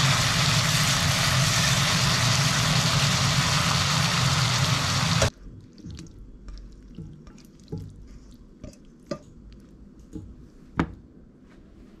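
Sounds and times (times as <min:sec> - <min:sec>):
stir-fry sizzling in frying pan: 0:00.0 - 0:05.3.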